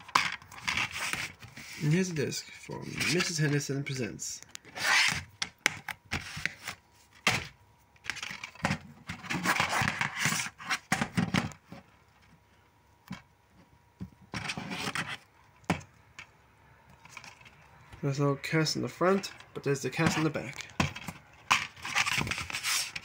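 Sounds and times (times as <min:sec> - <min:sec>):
plastic cases scraping: 0:00.0 - 0:03.6, 0:04.6 - 0:05.3, 0:06.1 - 0:11.9, 0:14.3 - 0:15.3, 0:19.1 - 0:23.0.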